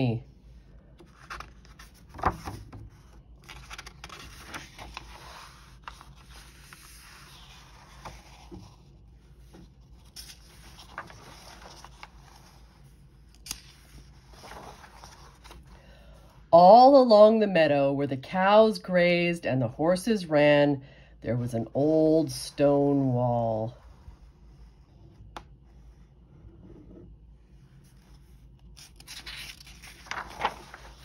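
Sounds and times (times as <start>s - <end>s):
paper pages rustling and turning: 0.9s - 15.8s, 27.4s - 31.0s.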